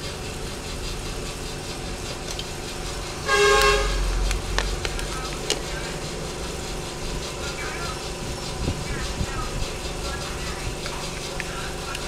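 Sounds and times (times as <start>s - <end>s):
steady low hum: 0.0s - 12.0s
buzzy horn toot: 3.2s - 4.2s.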